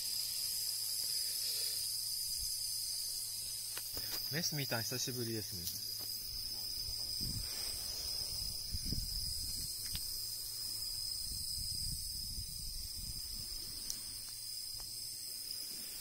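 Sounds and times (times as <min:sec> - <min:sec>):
insects trilling: 0:00.0 - 0:16.0.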